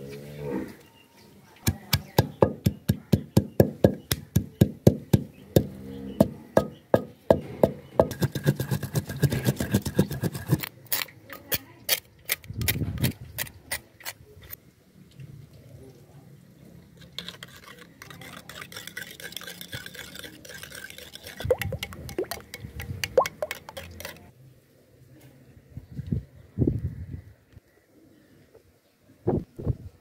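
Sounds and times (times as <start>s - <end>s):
stone pounding on stone slab: 1.7s - 10.0s.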